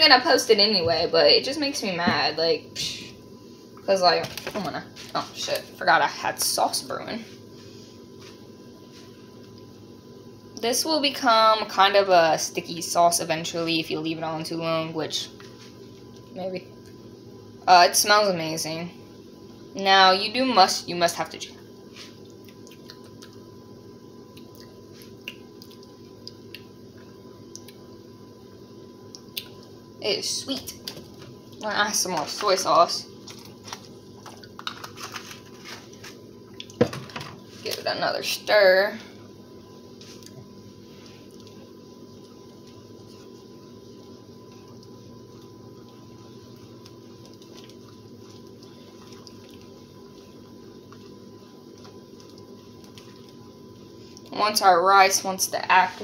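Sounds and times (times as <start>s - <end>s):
steady low hum: 0.0s - 56.0s
sausages simmering in a pan: 2.6s - 55.6s
bubbling sauce popping: 21.7s - 28.3s, 41.2s - 54.3s
spatula stirring: 44.5s - 54.2s.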